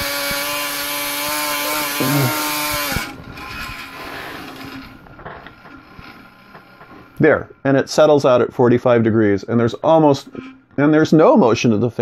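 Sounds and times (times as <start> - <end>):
electric fan humming: 0.0 - 12.0.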